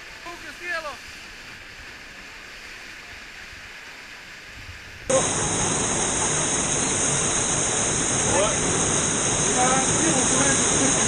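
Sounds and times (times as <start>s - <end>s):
water rushing down waterfall: 0.0s - 11.0s.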